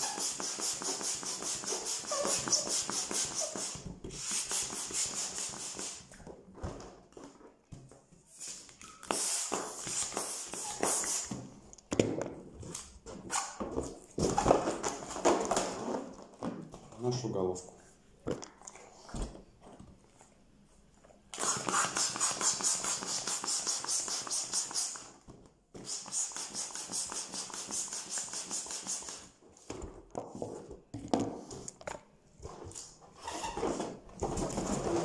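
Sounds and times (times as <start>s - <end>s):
rubber balloon rubbing: 0.0s - 5.9s, 9.0s - 11.4s
balloon pump air strokes: 0.0s - 6.2s, 8.4s - 11.4s, 21.4s - 25.2s, 25.8s - 29.4s.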